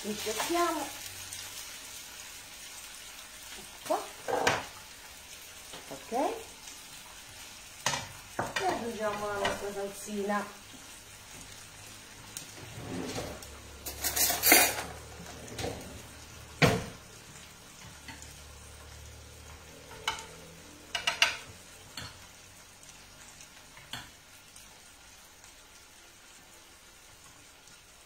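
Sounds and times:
spoon scraping and clinking on bowl: 13.9s - 14.9s.

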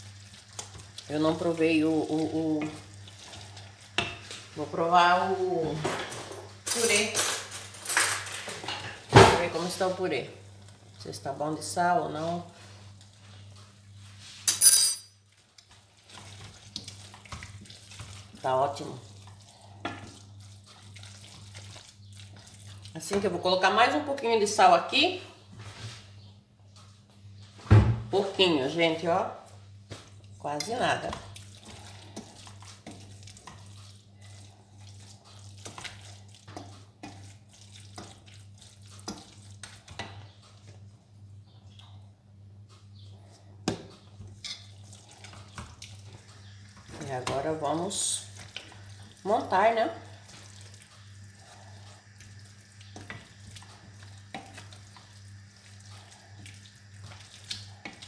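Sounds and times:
wooden spoon stirring thick food: 0.0s - 7.0s, 8.3s - 14.4s, 15.2s - 24.7s, 28.2s - 58.0s
wooden spoon scraping a saucepan: 30.0s - 40.8s.

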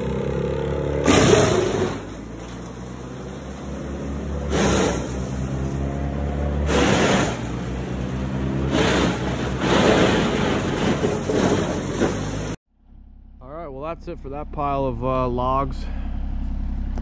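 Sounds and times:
vehicle engine humming: 0.0s - 17.0s.

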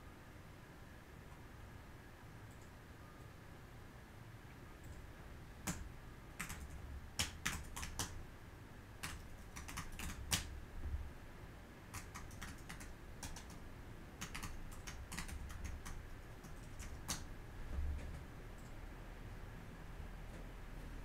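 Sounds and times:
typing on keyboard: 5.6s - 8.2s, 9.0s - 10.5s, 11.9s - 13.6s, 14.2s - 17.3s.

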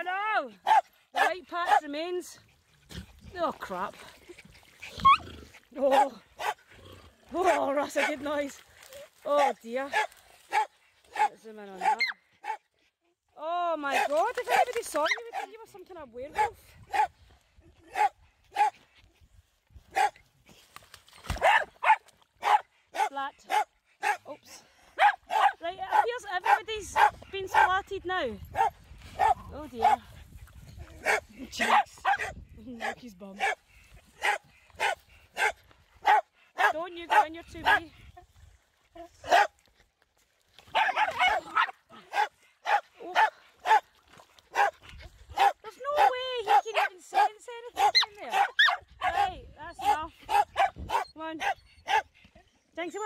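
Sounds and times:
dog barking: 0.6s - 1.8s, 5.9s - 6.6s, 9.9s - 12.6s, 16.4s - 17.1s, 17.9s - 18.8s, 19.9s - 20.2s, 21.4s - 24.3s, 25.0s - 27.7s, 28.5s - 30.0s, 31.0s - 33.6s, 34.2s - 37.8s, 39.3s - 39.5s, 40.7s - 43.8s, 44.5s - 44.8s, 45.4s - 52.1s.

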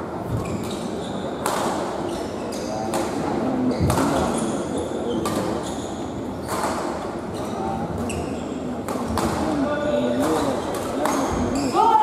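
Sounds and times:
shoe squeaks: 0.3s - 1.4s, 2.0s - 2.9s, 3.6s - 6.6s, 7.3s - 8.7s, 10.6s - 11.9s
racket hitting shuttlecock: 1.4s - 1.9s, 8.8s - 9.5s.

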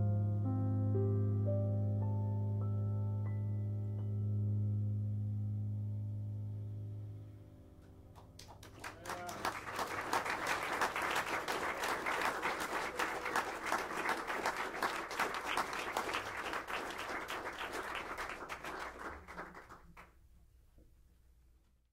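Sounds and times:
audience applauding: 8.2s - 20.1s.

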